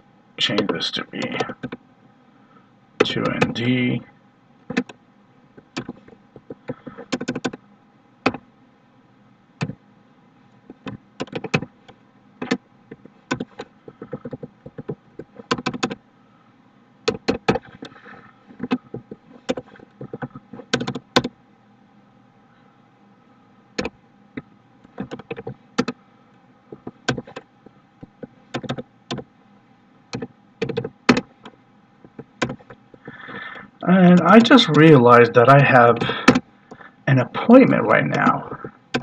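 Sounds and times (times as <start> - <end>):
computer keyboard typing: 3.0 - 3.7, 5.7 - 7.6, 10.8 - 11.7, 12.4 - 16.0, 17.1 - 18.0, 18.6 - 21.3, 25.0 - 26.0, 26.7 - 27.5, 28.1 - 29.2, 30.1 - 31.5, 32.1 - 33.2.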